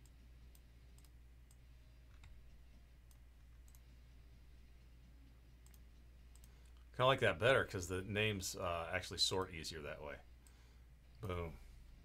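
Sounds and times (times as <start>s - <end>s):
computer mouse clicks: 0.0s - 3.9s, 5.6s - 6.9s
low steady hum: 0.0s - 12.0s.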